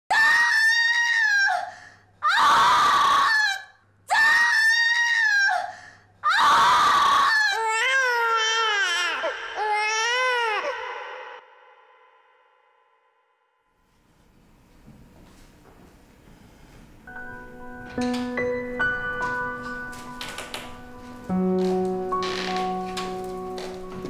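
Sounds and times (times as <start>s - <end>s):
woman screaming: 0.1s - 8.3s, 9.2s - 11.4s
newborn baby crying: 6.4s - 11.4s.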